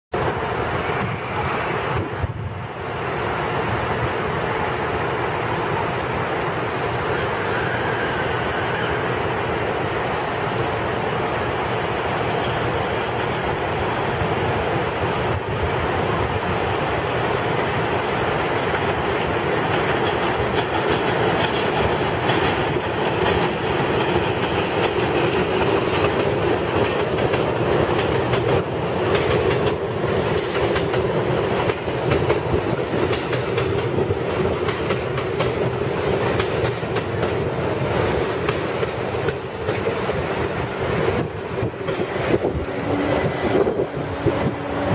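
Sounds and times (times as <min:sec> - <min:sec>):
train wheels rumbling on rails: 0:00.1 - 0:44.9
wheels clicking over rail joints: 0:19.6 - 0:37.4.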